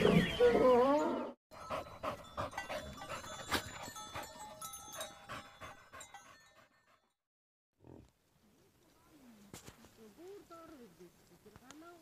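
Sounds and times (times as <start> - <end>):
dog panting quickly: 1.6 - 7.0.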